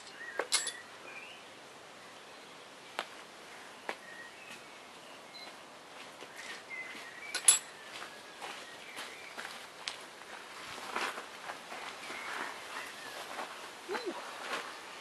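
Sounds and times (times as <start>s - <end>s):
faint high chirps: 5.2s - 5.6s.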